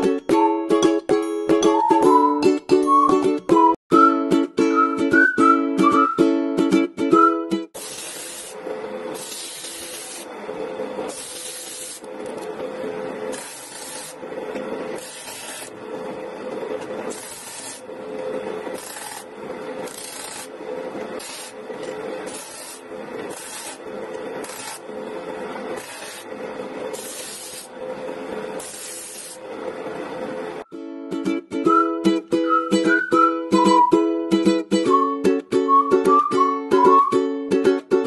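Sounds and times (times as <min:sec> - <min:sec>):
disc sander humming: 0:07.8 - 0:30.6
wood rasping on sanding disc: 0:09.2 - 0:10.3, 0:11.1 - 0:12.1, 0:13.3 - 0:14.2, 0:14.9 - 0:15.8, 0:16.9 - 0:17.9, 0:18.7 - 0:20.5, 0:21.2 - 0:21.6, 0:22.2 - 0:23.8, 0:26.9 - 0:27.7.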